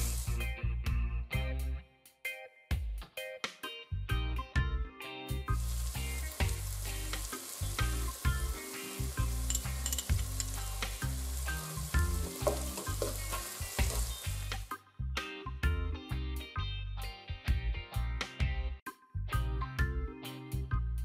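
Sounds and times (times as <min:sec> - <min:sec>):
onions sizzling in hot oil: 0:00.0 - 0:00.5, 0:05.5 - 0:14.7
background music: 0:00.0 - 0:21.0
spatula stirring in a pot: 0:05.6 - 0:14.6.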